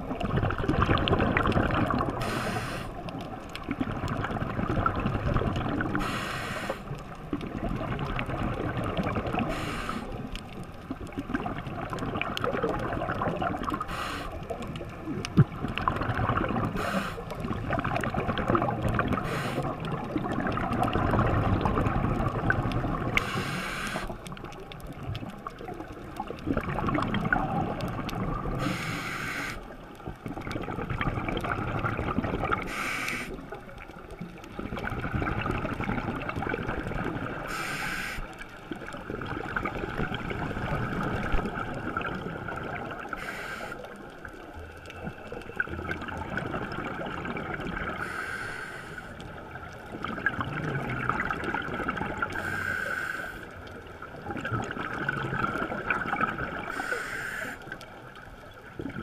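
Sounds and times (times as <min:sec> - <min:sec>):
bubbling underwater exhale: 0:00.0 - 0:59.0
scuba regulator inhale hiss: 0:02.2 - 0:03.0, 0:06.0 - 0:06.9, 0:09.4 - 0:10.2, 0:13.8 - 0:14.5, 0:16.8 - 0:17.4, 0:19.2 - 0:19.8, 0:23.2 - 0:24.2, 0:28.6 - 0:29.7, 0:32.6 - 0:33.4, 0:37.4 - 0:38.4, 0:43.1 - 0:43.9, 0:48.0 - 0:49.2, 0:52.4 - 0:53.6, 0:56.7 - 0:57.8.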